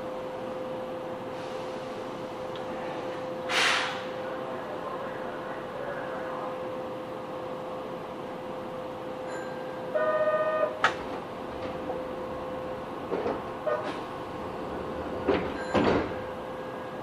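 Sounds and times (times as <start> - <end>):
train hum: 0.0 - 17.0.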